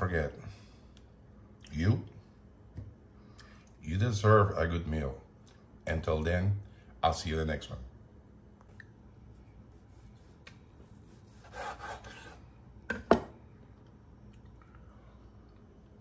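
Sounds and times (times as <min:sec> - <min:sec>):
knife cutting meat on board: 0:11.1 - 0:12.4.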